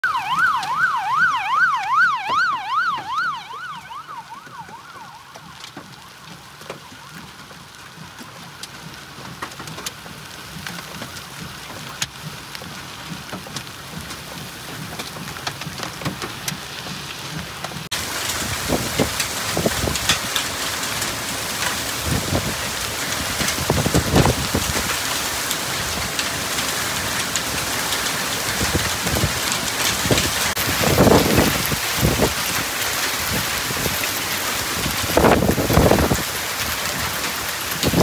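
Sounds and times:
emergency siren yelping: 0:00.0 - 0:09.1
heavy rain and hail: 0:00.0 - 0:38.0
hailstones ticking: 0:04.0 - 0:38.0.

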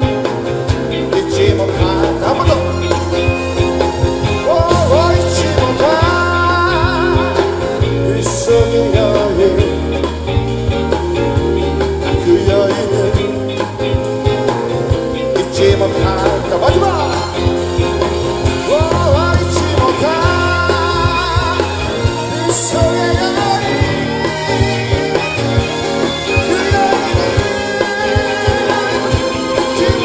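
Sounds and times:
man singing: 0:00.0 - 0:10.4, 0:11.8 - 0:30.0
acoustic guitar: 0:00.0 - 0:30.0
bass guitar: 0:00.0 - 0:30.0
drums: 0:00.0 - 0:30.0
electric guitar: 0:00.0 - 0:30.0.

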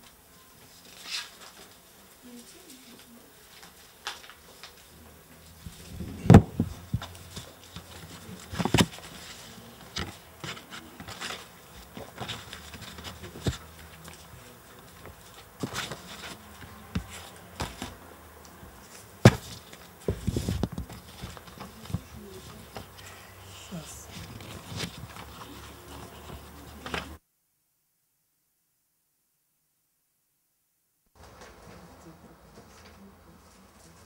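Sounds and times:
paper pages rustling: 0:00.6 - 0:23.0, 0:23.8 - 0:27.2
microphone handling knocks: 0:05.9 - 0:07.1.

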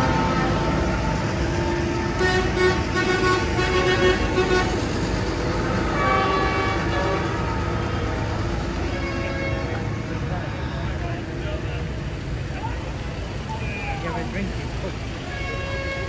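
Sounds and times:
horn tooting: 0:00.0 - 0:04.9, 0:05.9 - 0:10.2, 0:15.2 - 0:16.0
diesel tractors rumbling past: 0:00.0 - 0:16.0.

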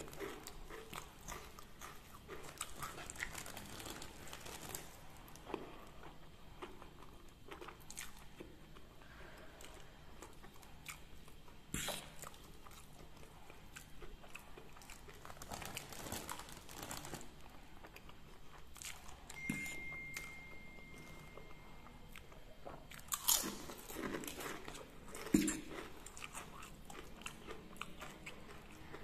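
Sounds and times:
chewing with crunches: 0:00.0 - 0:29.0
faint high tone: 0:19.4 - 0:22.1.

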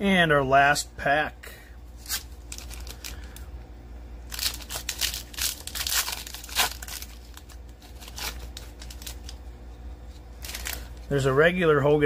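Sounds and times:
foil wrapper tearing and crinkling: 0:02.0 - 0:03.4, 0:04.3 - 0:09.4, 0:10.4 - 0:11.1.

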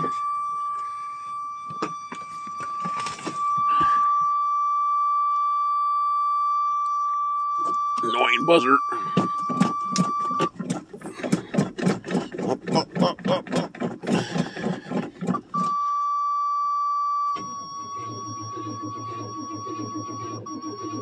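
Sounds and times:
dashboard warning buzzer: 0:00.0 - 0:11.3
starter cranking engine slowly: 0:09.1 - 0:15.6.

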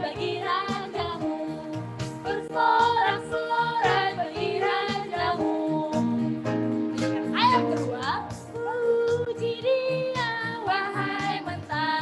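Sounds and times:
children singing worship song: 0:00.0 - 0:06.2, 0:10.4 - 0:12.0
instrumental backing track: 0:00.0 - 0:12.0.

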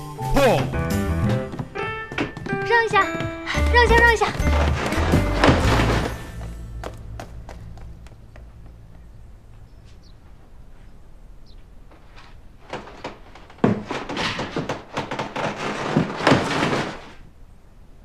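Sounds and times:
dull thumps: 0:00.4 - 0:10.3, 0:11.9 - 0:17.2
cardboard and leaves rustling: 0:02.6 - 0:08.3, 0:09.8 - 0:17.4.

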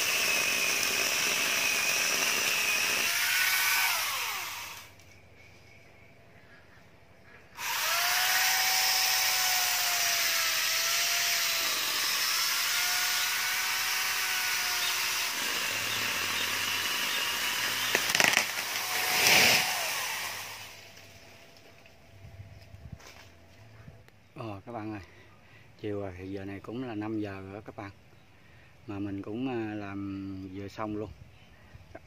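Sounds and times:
angle grinder cutting wood: 0:00.0 - 0:05.0, 0:07.6 - 0:21.2
tree trunk cracking: 0:17.8 - 0:19.8
tree crashing through branches: 0:17.9 - 0:20.2.

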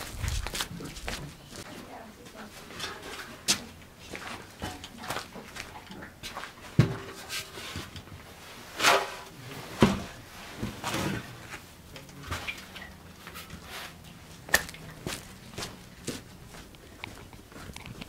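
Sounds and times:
rustling scrapes: 0:07.0 - 0:11.6, 0:12.3 - 0:14.1.

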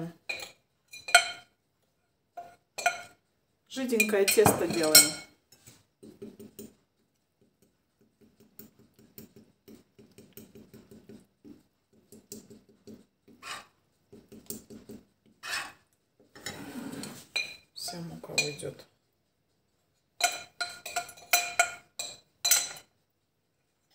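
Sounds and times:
metal spoon stirring batter in bowl: 0:00.0 - 0:23.9.

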